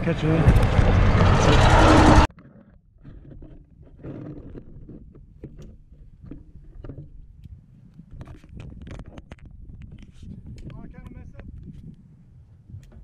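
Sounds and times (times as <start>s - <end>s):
wind on microphone: 7.1s - 13.0s.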